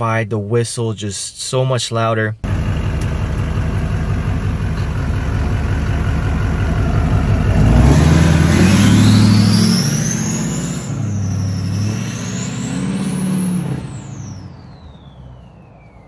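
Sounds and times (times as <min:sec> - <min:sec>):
diesel engine rumbling: 0:02.4 - 0:16.0
turbo whistle rising: 0:08.5 - 0:16.0.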